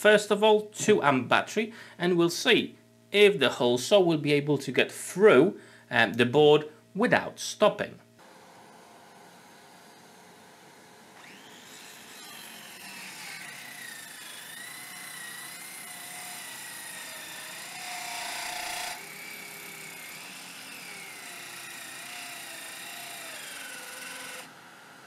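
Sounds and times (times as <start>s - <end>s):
circular saw cutting timber: 8.3s - 25.0s.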